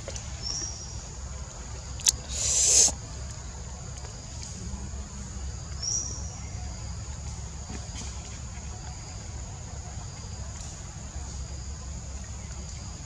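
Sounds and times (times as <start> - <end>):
high-pitched insect drone: 2.0 - 3.0.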